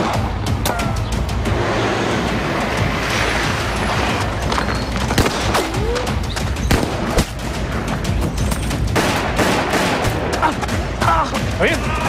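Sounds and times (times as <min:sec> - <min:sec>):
background music: 0:00.0 - 0:12.0
pistol shots: 0:05.2 - 0:05.8, 0:06.6 - 0:07.4, 0:08.9 - 0:10.4.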